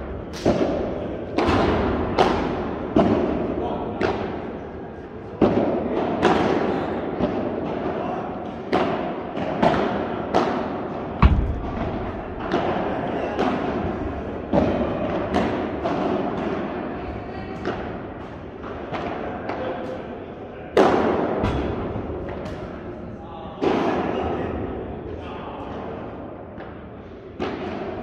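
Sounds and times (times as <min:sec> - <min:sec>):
padel ball hit by rackets: 0:11.2 - 0:13.6.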